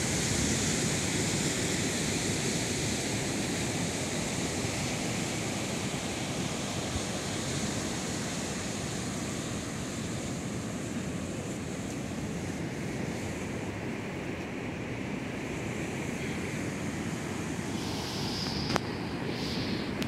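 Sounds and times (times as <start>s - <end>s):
ocean surf washing onto beach: 0.0s - 20.0s
wind blowing: 9.9s - 20.0s.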